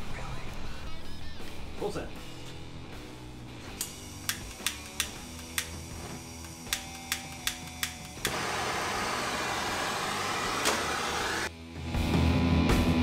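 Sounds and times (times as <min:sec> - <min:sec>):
spark lighter clicking: 0:03.7 - 0:08.4
gas torch hissing: 0:03.7 - 0:11.5.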